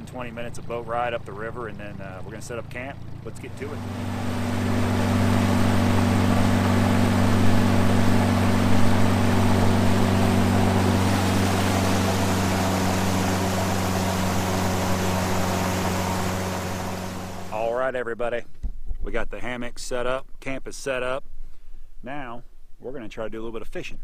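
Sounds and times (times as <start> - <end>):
outboard motor droning: 0.0 - 17.8
water rushing along hull: 3.4 - 17.7.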